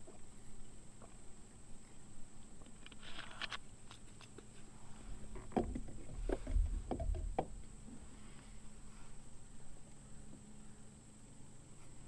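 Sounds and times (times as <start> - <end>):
dull knocks of gear: 5.3 - 7.7.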